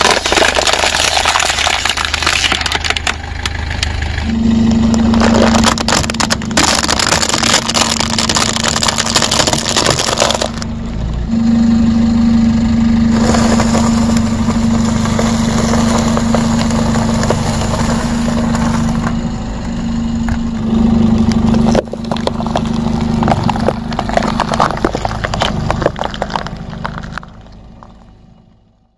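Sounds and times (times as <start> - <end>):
tyre crunching dry toast: 0.0 - 3.6, 5.0 - 10.6, 21.5 - 27.4
tyre crushing bell peppers: 0.0 - 3.6, 5.0 - 10.7
car engine idling: 0.0 - 28.9.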